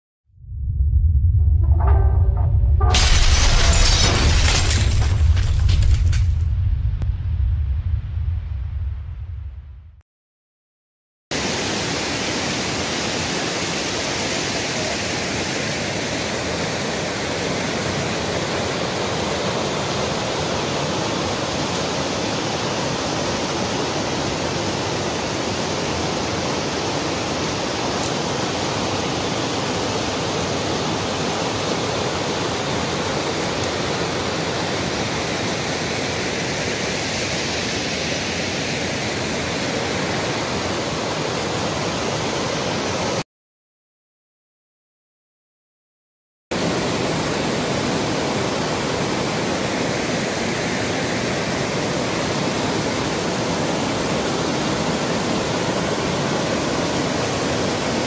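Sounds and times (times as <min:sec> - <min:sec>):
river water rushing over rocks: 0:11.4 - 0:43.2, 0:46.6 - 0:58.0.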